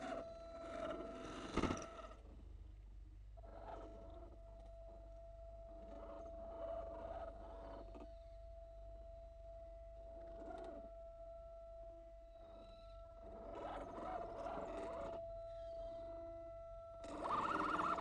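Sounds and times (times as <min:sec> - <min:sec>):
toy car electric motor whine: 0:12.6 - 0:16.3, 0:17.0 - 0:18.0
motor and gear whir: 0:17.0 - 0:18.0.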